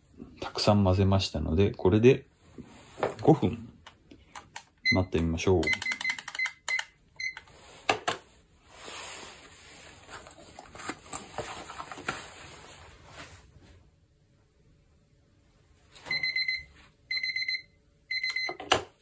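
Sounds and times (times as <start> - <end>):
digital kitchen timer beeping: 4.8 - 7.4, 16.1 - 18.6
paper cup rustling: 9.1 - 13.3.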